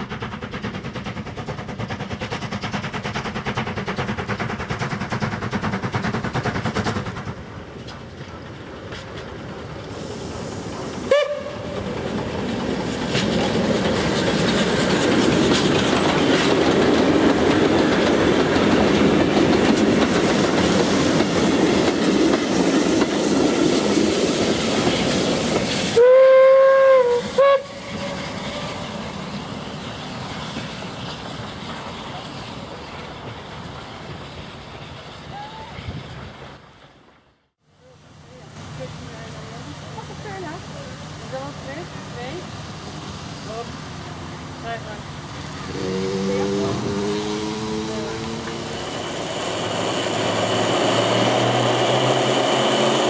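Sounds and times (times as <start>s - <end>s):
steam train clatter: 0.0s - 37.2s, 37.9s - 53.0s
rail noise: 0.0s - 53.0s
steam whistle: 11.1s - 11.7s, 26.0s - 28.6s.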